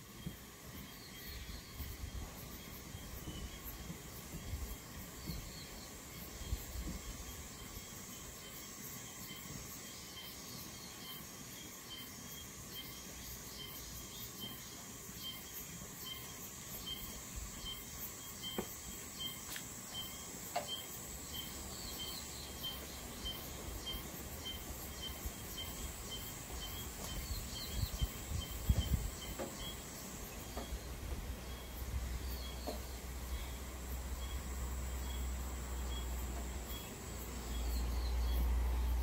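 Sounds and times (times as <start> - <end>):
steady high hiss: 0.0 - 39.0.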